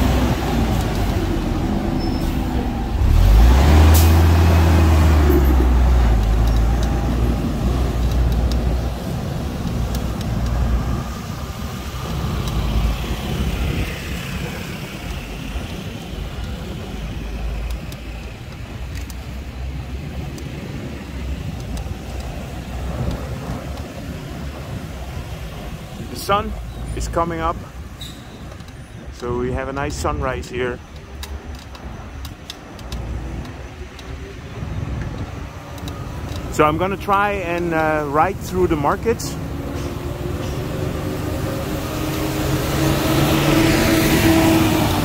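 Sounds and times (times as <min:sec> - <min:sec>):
heavy vehicle engine passing: 0:00.0 - 0:17.5, 0:36.6 - 0:45.0
traffic noise: 0:00.0 - 0:45.0.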